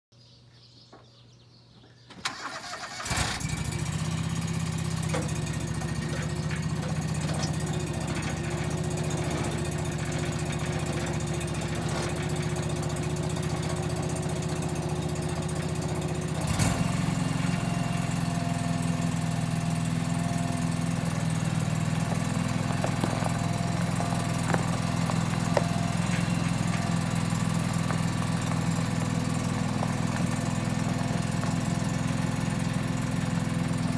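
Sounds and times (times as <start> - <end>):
engine starter cranking: 2.2 - 17.5
lawn tractor engine running: 2.2 - 33.9.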